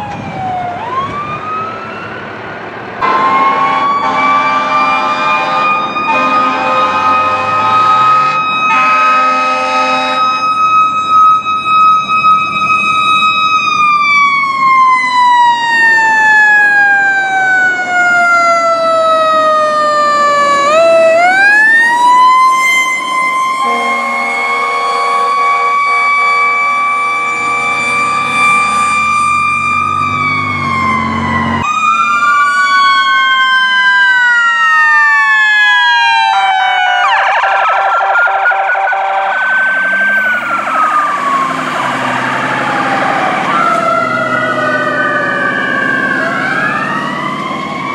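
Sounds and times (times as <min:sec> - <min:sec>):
fire truck siren wailing: 0:00.0 - 0:47.9
two-tone siren yelping: 0:03.0 - 0:47.9.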